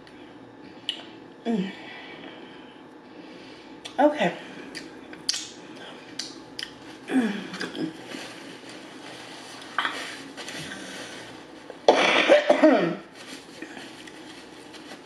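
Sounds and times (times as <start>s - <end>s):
woman coughing: 11.9s - 13.1s.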